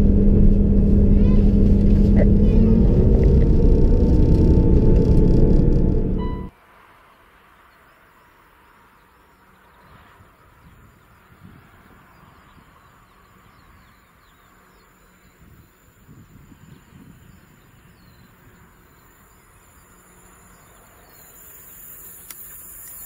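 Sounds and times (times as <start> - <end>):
distant diesel locomotive rumble: 0.0 - 6.5
high insect whine: 14.6 - 23.0
high hiss: 20.9 - 23.0.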